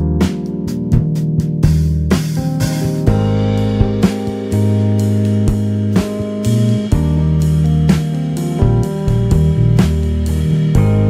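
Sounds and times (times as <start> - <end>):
bass line: 0.0 - 11.0
drum hits: 0.0 - 11.0
guitar: 2.4 - 11.0.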